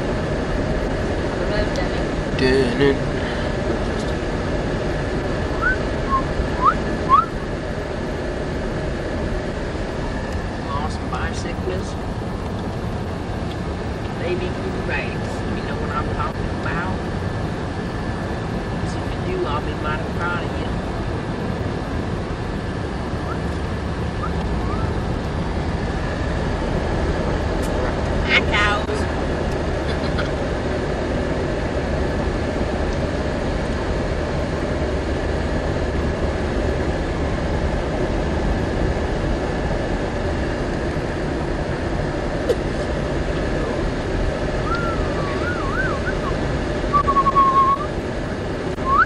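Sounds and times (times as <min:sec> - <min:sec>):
car road and engine noise: 0:00.0 - 0:49.0
whistle-like chirps: 0:05.6 - 0:07.3, 0:24.2 - 0:24.9, 0:44.6 - 0:46.3, 0:46.9 - 0:47.9.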